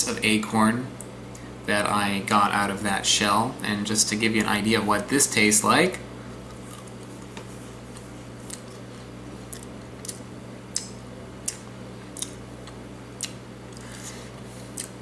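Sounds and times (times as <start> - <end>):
steady low hum: 0.0 - 15.0
person chewing crunchy acorn: 6.3 - 15.0.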